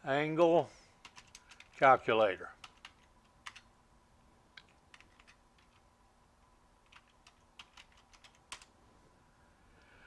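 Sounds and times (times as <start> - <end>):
keyboard keystrokes clicking: 1.0 - 1.8, 2.6 - 3.7, 6.8 - 8.7.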